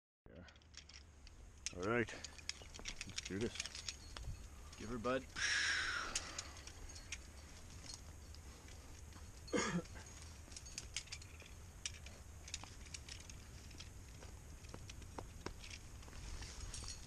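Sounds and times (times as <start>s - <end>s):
climbing gear clinking: 0.4s - 17.0s.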